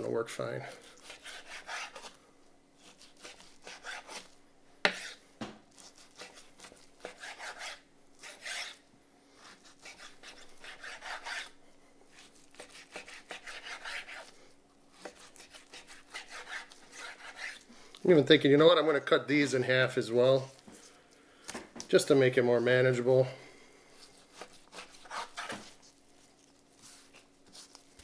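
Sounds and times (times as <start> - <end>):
knife slicing raw meat: 0.7 - 2.2, 2.8 - 8.8, 9.4 - 17.7, 24.0 - 26.0.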